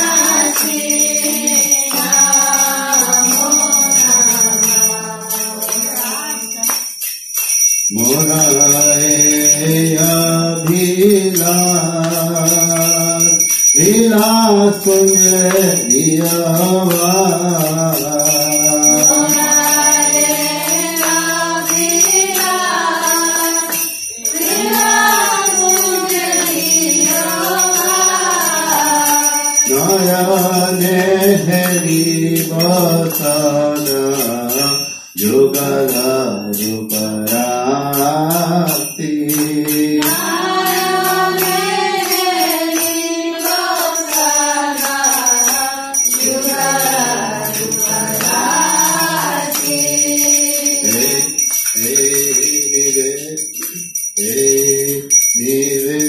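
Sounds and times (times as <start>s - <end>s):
small hand bell ringing: 0.0s - 56.0s
women singing devotional song: 0.0s - 56.0s.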